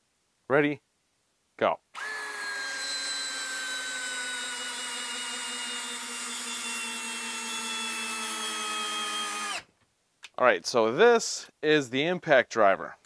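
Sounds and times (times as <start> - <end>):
cordless screwdriver motor whine: 2.0 - 9.7.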